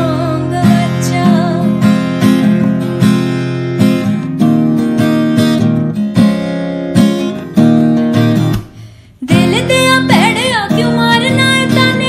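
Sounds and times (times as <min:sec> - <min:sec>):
woman singing: 0:00.0 - 0:02.0, 0:09.2 - 0:12.0
strummed acoustic guitar: 0:00.0 - 0:12.0.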